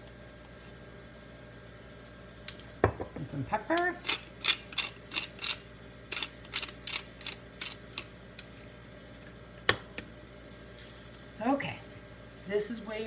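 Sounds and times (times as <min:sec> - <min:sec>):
pepper mill grinding: 0:04.0 - 0:08.5.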